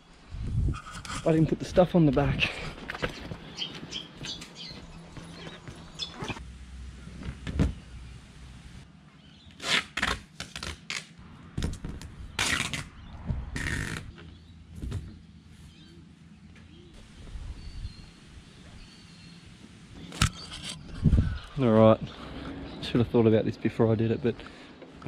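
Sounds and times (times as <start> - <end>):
footsteps: 2.4 - 6.4.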